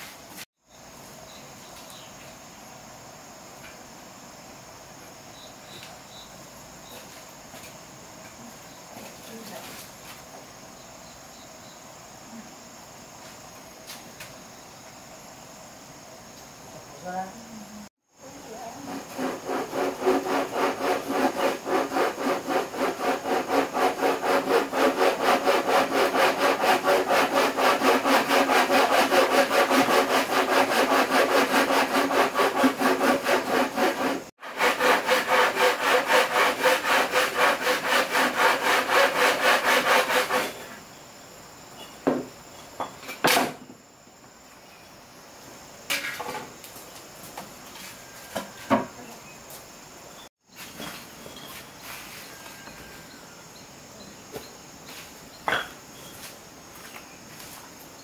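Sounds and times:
hand saw strokes: 18.8 - 40.8.

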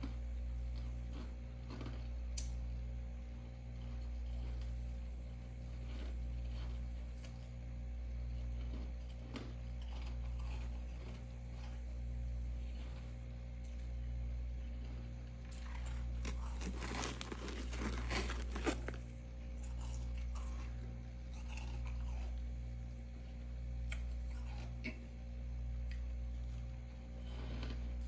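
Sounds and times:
frost crunching and scraping: 0.0 - 2.1, 3.8 - 7.5, 8.2 - 13.2, 14.7 - 22.4, 27.2 - 28.0
low hum: 0.0 - 28.0.

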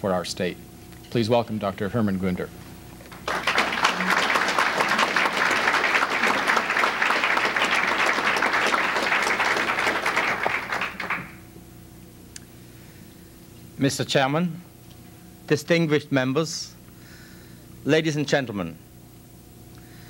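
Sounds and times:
faint hum: 0.0 - 20.0
audience applauding: 3.0 - 11.4.

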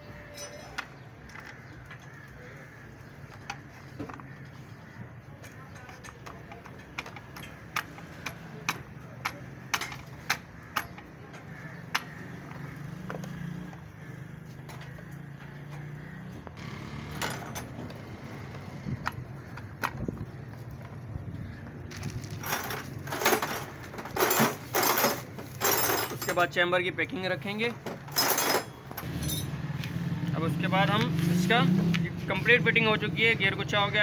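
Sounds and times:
metal engine parts clinking: 5.7 - 12.1, 17.1 - 18.0, 22.0 - 26.8, 27.8 - 29.6.

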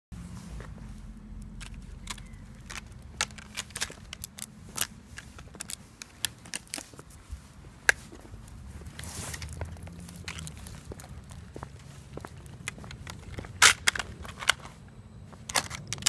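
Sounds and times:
dog claws clicking on bricks: 1.4 - 7.1.

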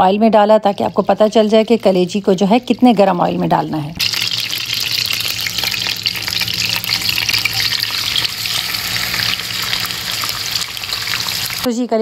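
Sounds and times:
meat sizzling in hot oil: 4.0 - 11.7.

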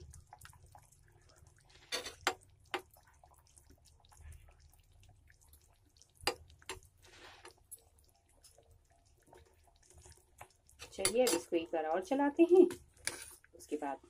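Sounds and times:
food simmering with bubble pops: 0.0 - 14.0.

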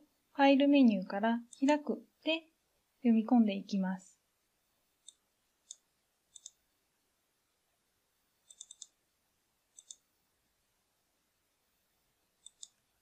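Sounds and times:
computer mouse clicks: 1.4 - 1.8, 5.0 - 6.6, 8.4 - 9.0, 9.7 - 10.0, 12.4 - 12.8.

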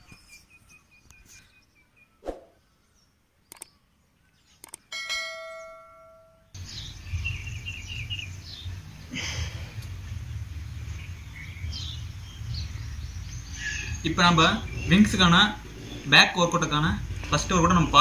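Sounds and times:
birds chirping: 0.0 - 18.0
mouse clicks: 3.5 - 3.7, 4.6 - 4.8
bell ding: 5.0 - 6.4.

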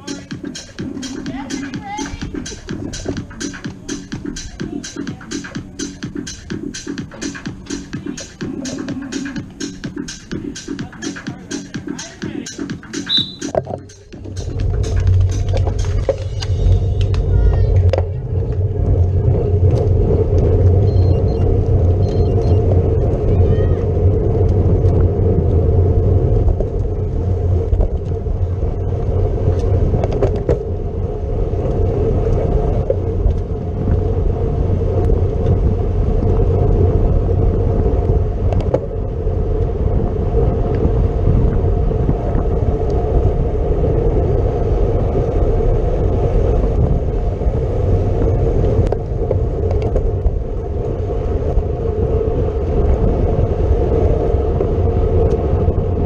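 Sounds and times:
bicycle road rumble: 0.0 - 56.0
wind rush on microphone: 13.1 - 56.0.

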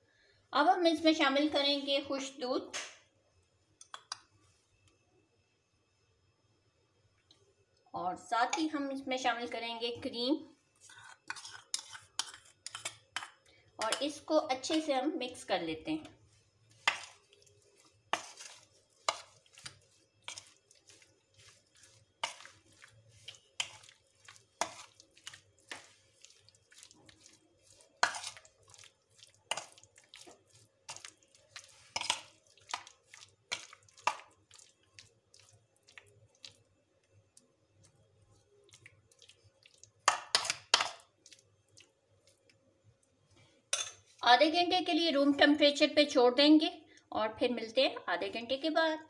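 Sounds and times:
spoon knocking and scraping bowl: 10.8 - 14.9, 16.7 - 26.4, 27.0 - 28.9, 29.5 - 34.4, 40.0 - 41.1, 43.7 - 44.1.

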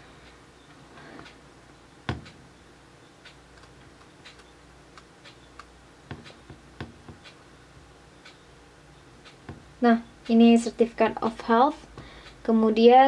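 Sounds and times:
computer mouse clicking: 3.2 - 6.4.

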